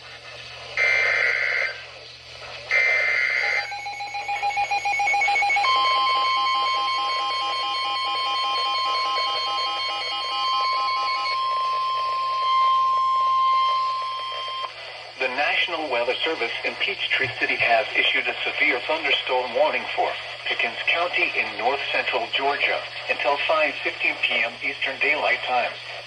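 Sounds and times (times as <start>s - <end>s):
screechy digital header tones: 0.8s - 1.9s, 2.7s - 14.7s
steady warning alarm tone: 0.8s - 2.0s, 2.6s - 26.0s
alert radios beeping: 2.7s - 15.7s.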